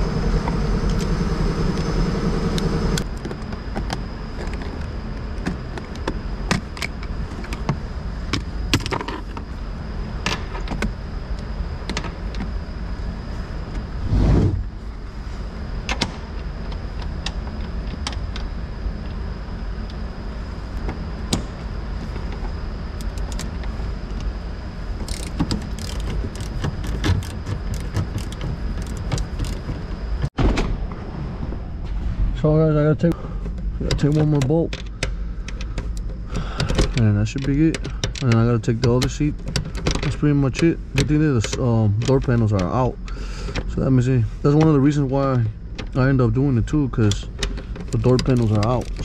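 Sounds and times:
low hum: 0.0 - 49.0
socket ratchet clicking: 23.0 - 23.6, 25.0 - 29.6
thump: 30.4 - 30.8.

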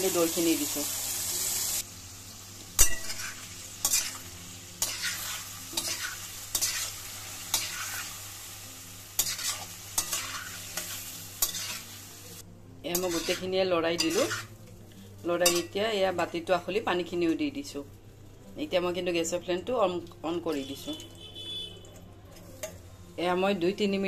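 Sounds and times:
low pan sizzle: 0.0 - 24.0
spoon stirring and scraping pan: 2.8 - 8.2, 9.1 - 12.0, 12.9 - 14.6.

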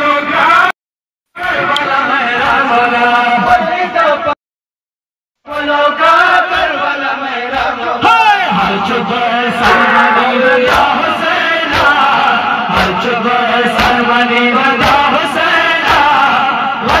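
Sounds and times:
men chanting together: 5.5 - 17.0
chest beating strikes: 9.6 - 11.1.

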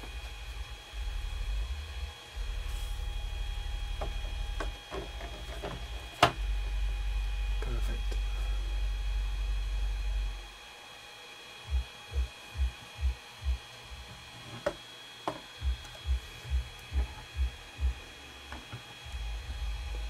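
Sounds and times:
faint high whine: 0.0 - 20.0
soft low thumps: 11.7 - 14.0, 15.3 - 18.1.

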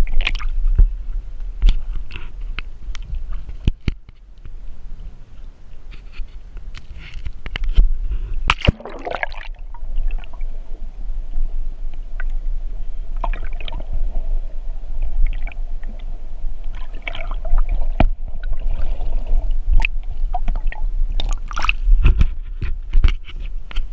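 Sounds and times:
water sloshing and gurgling: 0.0 - 4.0, 6.8 - 23.9
underwater hum: 0.0 - 23.9
low rumble: 7.8 - 22.9.

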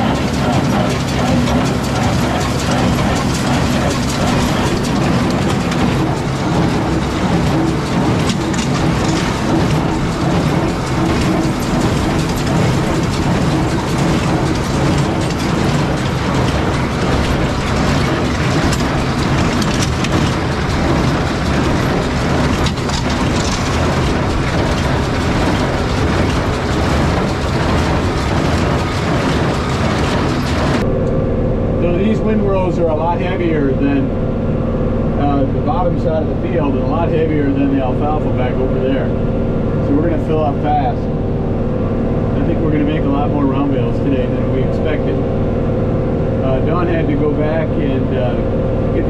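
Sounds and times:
baler clattering and rattling: 0.0 - 30.9
machine hum: 0.0 - 49.0.

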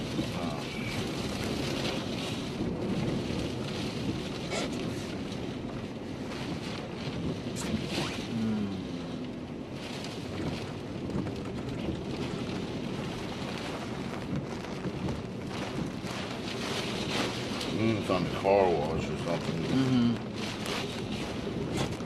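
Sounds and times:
vehicle low rumble: 0.0 - 22.0
wind and rain rushing: 0.0 - 22.0.

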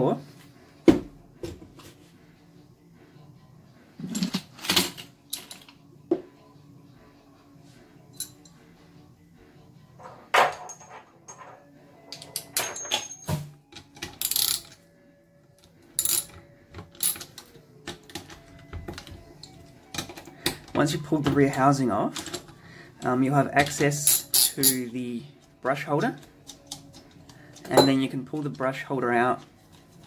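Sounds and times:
metal and plastic clinks: 10.5 - 14.8, 16.0 - 20.6.

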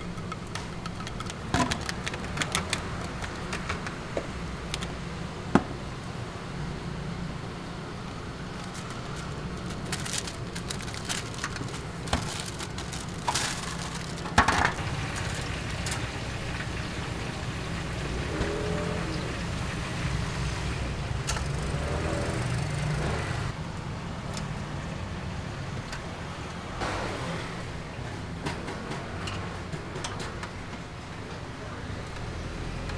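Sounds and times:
hot oil sizzling: 14.8 - 21.1.

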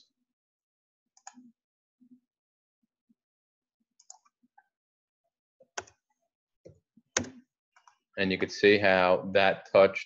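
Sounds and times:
computer mouse clicks: 1.2 - 1.5, 4.0 - 4.4.

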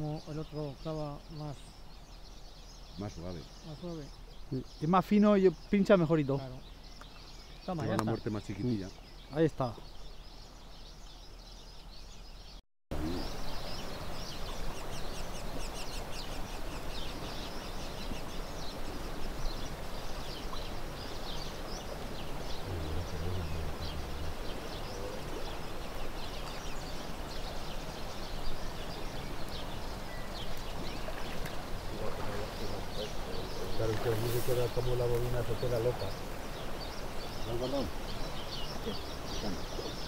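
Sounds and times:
small birds chirping: 0.0 - 40.0
river water rushing: 17.8 - 33.2.

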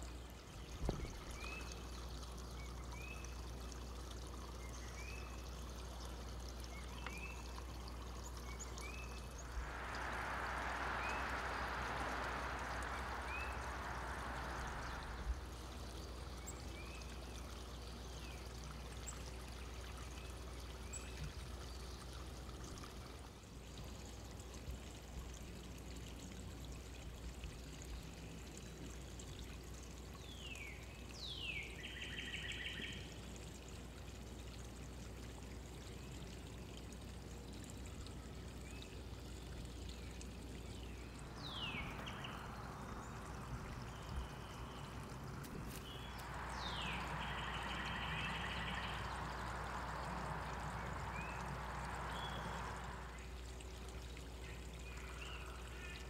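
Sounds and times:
steady hiss and low hum: 0.0 - 56.0
small birds chirping: 4.4 - 19.2, 38.6 - 53.4.

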